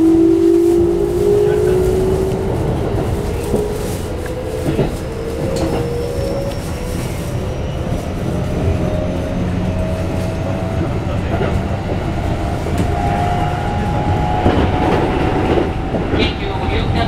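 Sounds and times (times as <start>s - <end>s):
wheels rumbling on rail: 0.0s - 17.0s.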